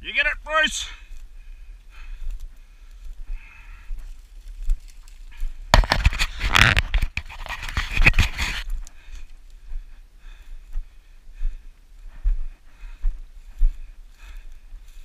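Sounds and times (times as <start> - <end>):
dry grass scraping microphone: 2.2 - 10.0.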